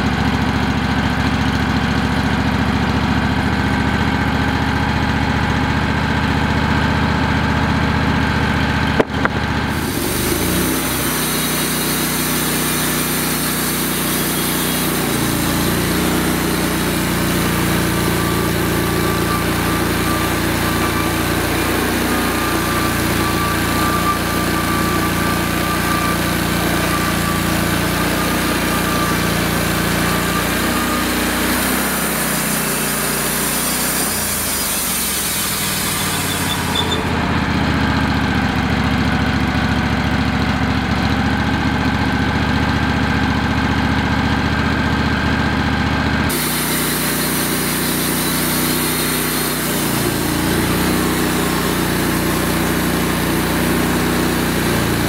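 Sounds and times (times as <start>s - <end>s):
band sawmill engine running: 0.0s - 55.0s
band blade sawing log: 9.0s - 37.3s, 46.3s - 55.0s.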